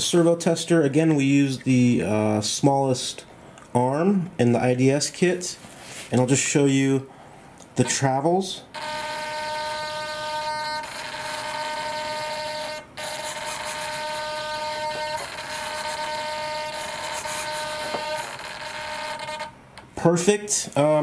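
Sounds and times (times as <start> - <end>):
servo humming high whine: 7.8 - 19.8.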